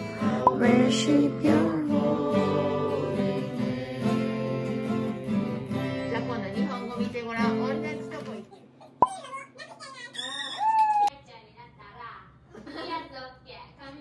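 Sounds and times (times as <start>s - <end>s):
group of people singing: 0.0s - 6.1s
acoustic guitar strumming: 0.0s - 8.2s.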